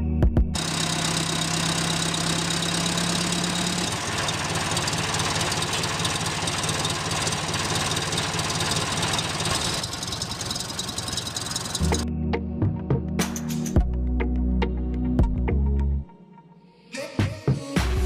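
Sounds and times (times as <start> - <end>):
toy tractor motor running: 0.6 - 12.0.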